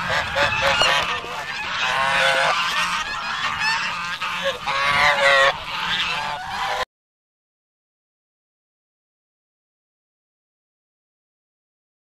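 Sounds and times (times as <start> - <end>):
geese honking: 0.0 - 6.9.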